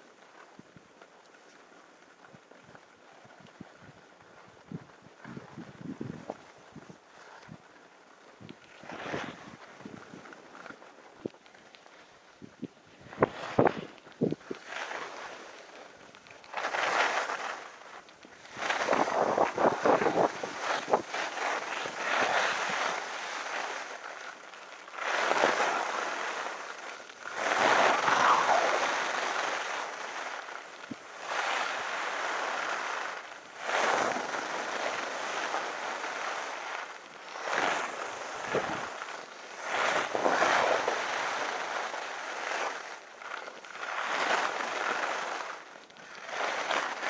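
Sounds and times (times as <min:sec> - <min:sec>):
skis scraping on snow: 0:00.1 - 0:47.0
wind buffeting microphone: 0:04.6 - 0:07.6, 0:18.5 - 0:21.2, 0:38.4 - 0:39.0.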